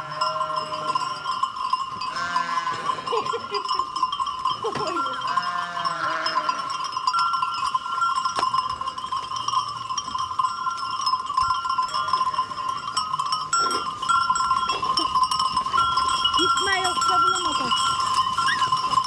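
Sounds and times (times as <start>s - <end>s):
sheep bleating: 0.0s - 1.2s, 2.1s - 3.3s, 5.3s - 6.7s
bells ringing on grazing flock: 0.0s - 19.0s.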